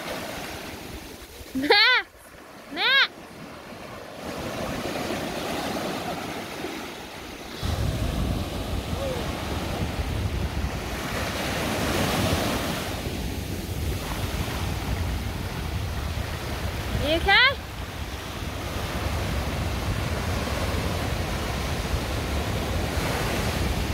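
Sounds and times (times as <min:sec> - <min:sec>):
surf waves breaking on shore: 0:00.0 - 0:23.9
wind buffeting microphone: 0:07.5 - 0:23.9.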